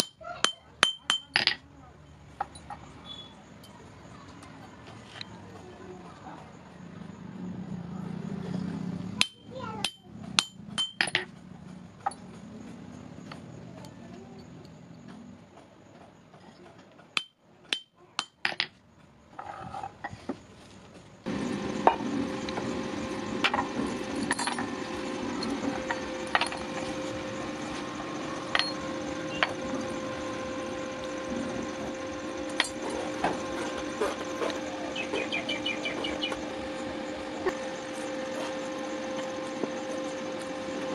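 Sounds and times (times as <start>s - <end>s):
steady hum: 21.2s - 40.9s.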